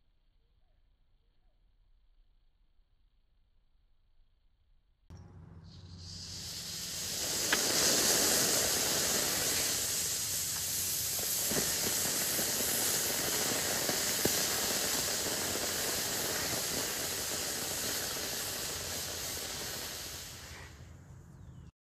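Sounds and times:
rocket motor hissing: 0:05.1 - 0:21.5
faint sharp pops: 0:06.1 - 0:20.7.

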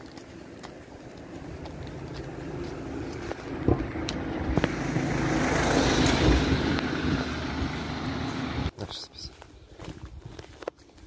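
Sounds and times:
van driving past: 0:01.1 - 0:08.7.

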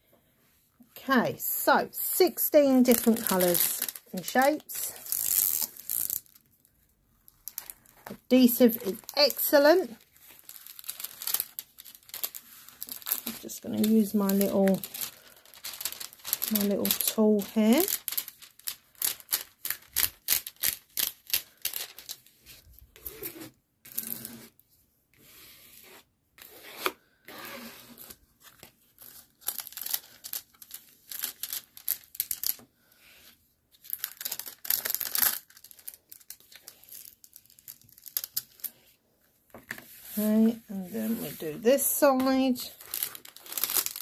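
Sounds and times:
plastic film crinkling: 0:02.3 - 0:23.2, 0:28.4 - 0:32.6, 0:33.8 - 0:38.8, 0:40.1 - 0:44.0.

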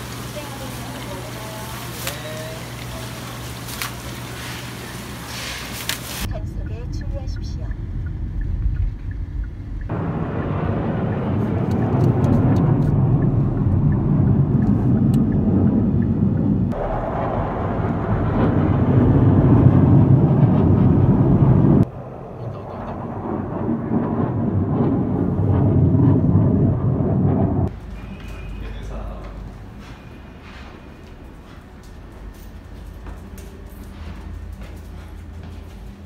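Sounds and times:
jets flying overhead: 0:07.8 - 0:27.8.

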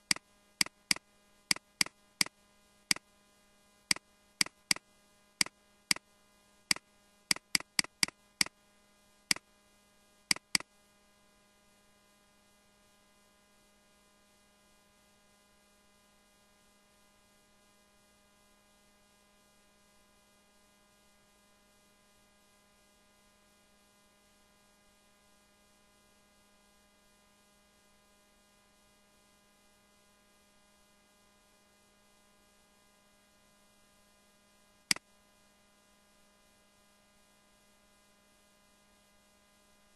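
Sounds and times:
sharp clicks: 0:00.0 - 0:01.9, 0:04.4 - 0:04.8, 0:06.7 - 0:08.1, 0:10.3 - 0:10.6
faint electrical hum: 0:00.0 - 0:39.9.

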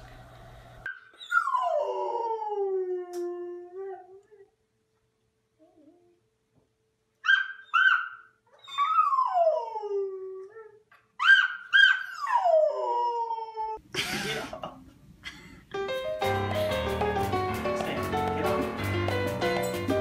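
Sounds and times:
dog yipping and howling: 0:00.9 - 0:04.5, 0:07.2 - 0:13.8.

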